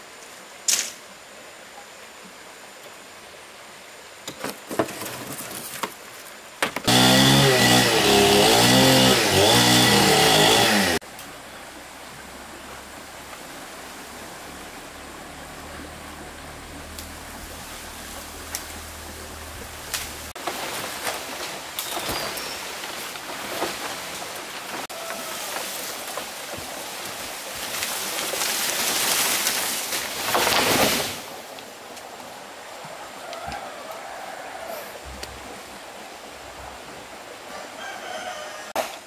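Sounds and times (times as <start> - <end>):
water splashing and running: 11.8 - 31.6.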